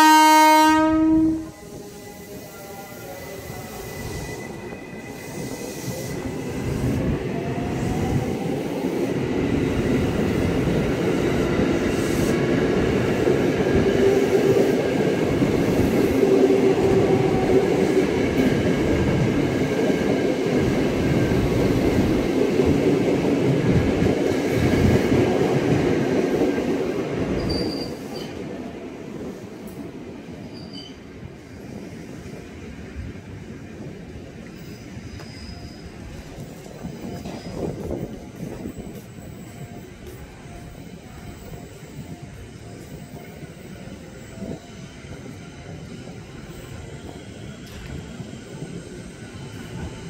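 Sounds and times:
train wheels clattering on rails: 0:34.4 - 0:40.4, 0:44.4 - 0:50.0.

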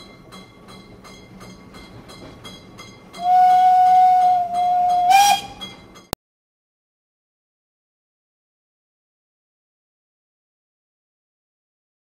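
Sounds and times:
steam locomotive chuffing: 0:00.0 - 0:06.1
steam whistle blast: 0:03.2 - 0:05.6.

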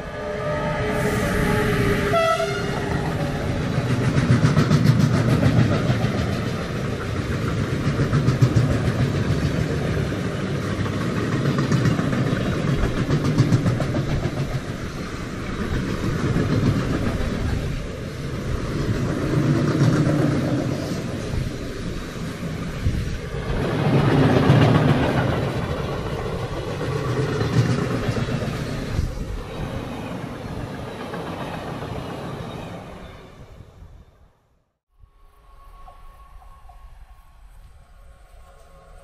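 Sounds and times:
falling pitch locomotive tone: 0:00.0 - 0:04.0, 0:35.0 - 0:39.0
train wheels rumbling on rails: 0:00.0 - 0:33.1.

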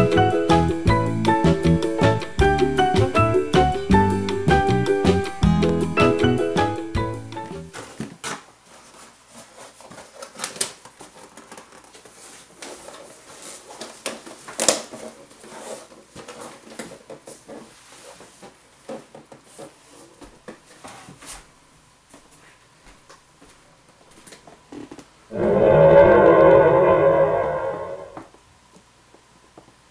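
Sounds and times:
cardboard rustling and scraping: 0:07.7 - 0:21.5.

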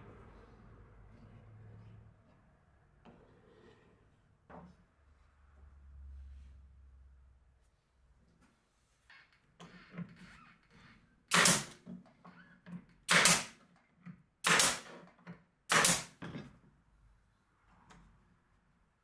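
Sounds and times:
nail gun shots into wood: 0:11.3 - 0:11.8, 0:13.1 - 0:13.6, 0:14.4 - 0:15.0, 0:15.7 - 0:16.2.

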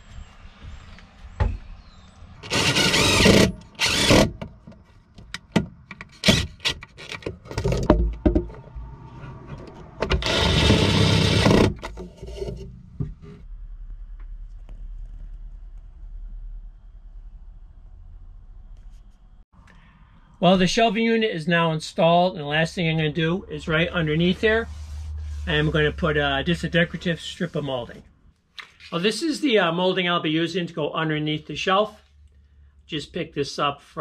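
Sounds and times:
drill driving screws into wood: 0:02.4 - 0:04.4, 0:06.2 - 0:06.8, 0:10.2 - 0:11.9.

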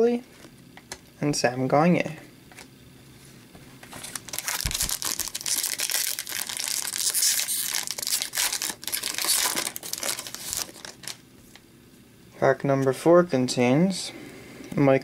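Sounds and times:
card pack wrapper crinkling and tearing: 0:03.9 - 0:11.2.

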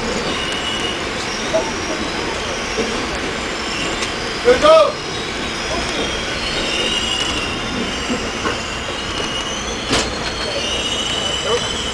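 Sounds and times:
steel wheels squealing on rails: 0:00.0 - 0:11.9
train running gear rumble: 0:00.0 - 0:11.9.

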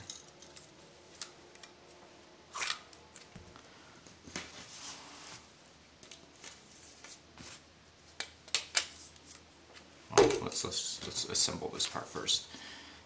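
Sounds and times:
metal parts handling noises: 0:00.0 - 0:01.7.

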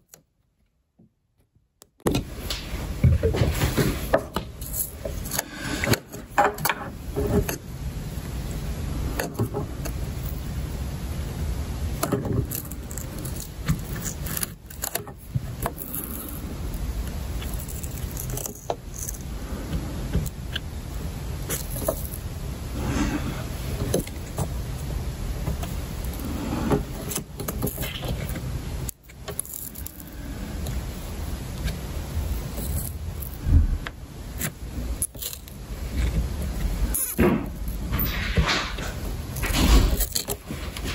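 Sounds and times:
tape peeling off wood: 0:11.9 - 0:20.7
steady low rumble: 0:29.8 - 0:40.9.

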